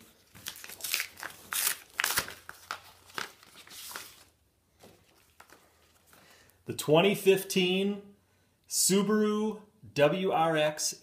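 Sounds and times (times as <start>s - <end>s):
paper envelope crinkling: 0.0s - 6.2s.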